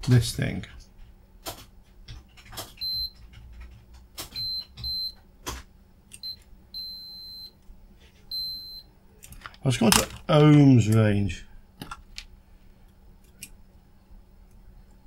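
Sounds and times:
multimeter high beeps: 0:02.8 - 0:03.2, 0:04.3 - 0:05.2, 0:06.2 - 0:07.6, 0:08.3 - 0:08.9.

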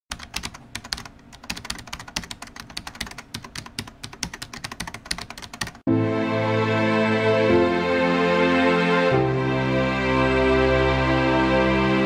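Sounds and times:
rapid keyboard typing: 0:00.1 - 0:05.9.

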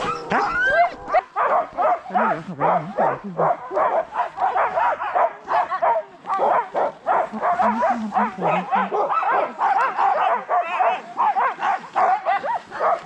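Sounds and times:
dogs whining: 0:00.0 - 0:01.3
dogs barking and yelping: 0:00.0 - 0:13.0.

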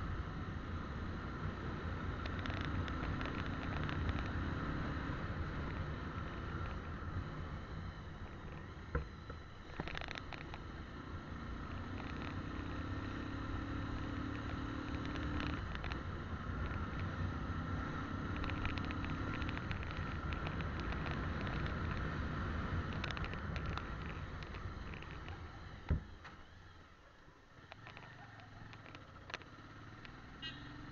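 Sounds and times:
motorcycle riding: 0:00.0 - 0:30.9
light ticks and rattles: 0:18.3 - 0:22.2.

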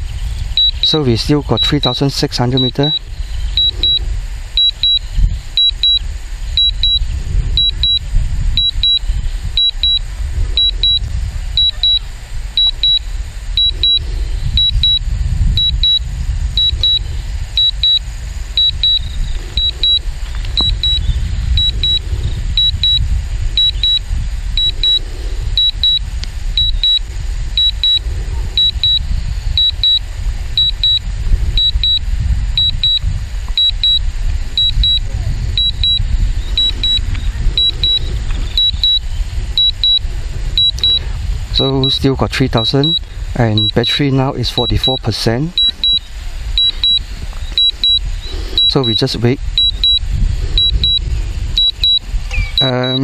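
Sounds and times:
wind buffeting microphone: 0:00.0 - 0:53.0
high double beep: 0:00.6 - 0:03.0, 0:03.6 - 0:04.0, 0:04.6 - 0:10.0, 0:10.6 - 0:15.0, 0:15.6 - 0:17.0, 0:17.6 - 0:18.0, 0:18.6 - 0:20.0, 0:20.6 - 0:22.0, 0:22.6 - 0:24.0, 0:24.6 - 0:25.0, 0:25.6 - 0:26.0, 0:26.6 - 0:27.0, 0:27.6 - 0:28.0, 0:28.6 - 0:29.0, 0:29.6 - 0:30.0, 0:30.6 - 0:31.0, 0:31.6 - 0:32.0, 0:32.6 - 0:34.0, 0:34.6 - 0:36.0, 0:36.6 - 0:40.0, 0:40.6 - 0:41.0, 0:41.6 - 0:50.0, 0:50.6 - 0:51.0, 0:51.6 - 0:53.0.

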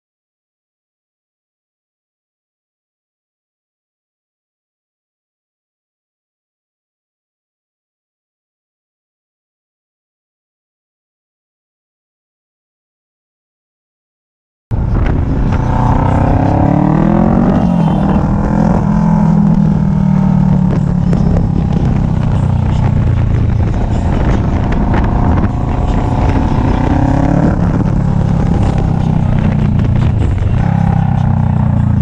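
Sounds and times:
motorcycle engine accelerating: 0:14.7 - 0:32.0.

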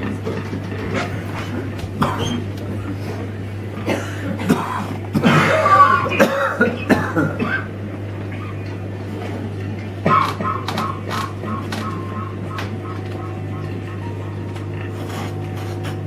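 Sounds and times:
steady electrical hum: 0:00.0 - 0:16.0
scattered clicks and knocks: 0:10.1 - 0:16.0.

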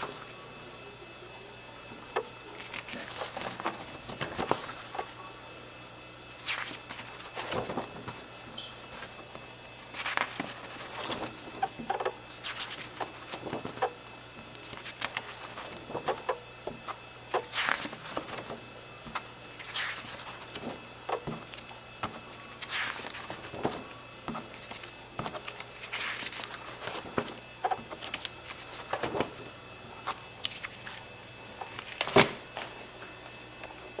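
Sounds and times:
steady low hum: 0:00.0 - 0:34.0
album pages turning: 0:02.4 - 0:05.2, 0:06.4 - 0:13.9, 0:14.5 - 0:16.0, 0:17.4 - 0:29.4, 0:30.0 - 0:32.9.

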